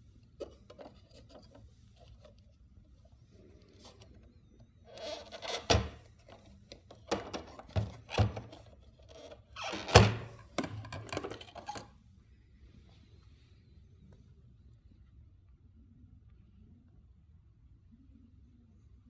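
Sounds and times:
plastic rubbing and scraping: 0.4s - 11.9s.

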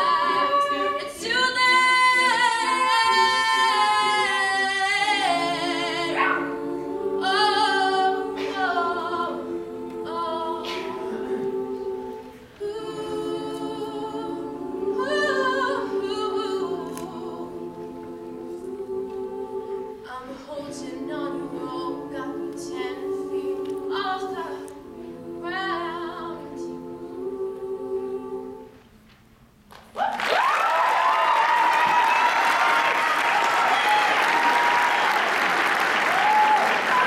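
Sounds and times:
a cappella group singing: 0.0s - 29.0s.

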